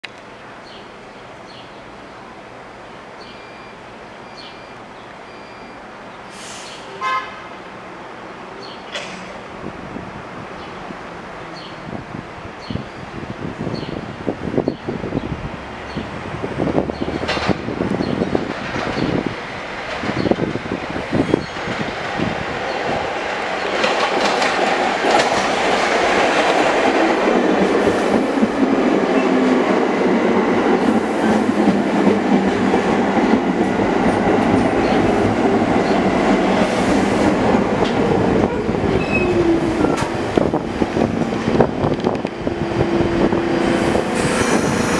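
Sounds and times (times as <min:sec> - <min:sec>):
train wheels rumbling on rails: 0:11.6 - 0:44.9.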